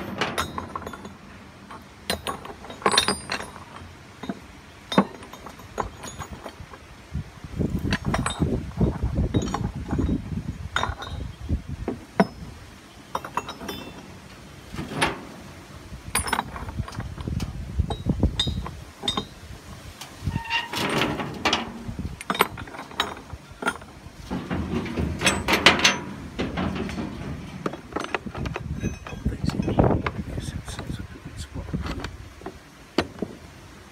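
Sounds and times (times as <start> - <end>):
metal castings clinking: 0.0 - 6.7, 7.9 - 11.3, 13.0 - 15.5, 16.1 - 17.2, 20.4 - 30.0.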